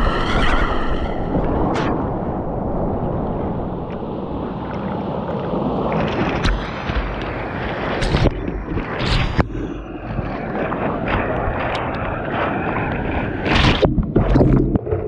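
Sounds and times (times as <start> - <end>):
water splashing against boat: 3.3 - 15.0.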